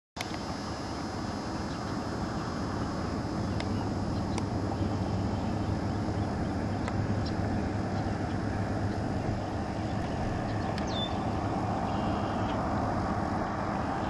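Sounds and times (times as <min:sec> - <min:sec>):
faint sharp ticks: 0:00.2 - 0:00.5, 0:03.5 - 0:04.6, 0:06.8 - 0:09.0, 0:10.6 - 0:11.0
low outdoor rumble: 0:00.2 - 0:14.0.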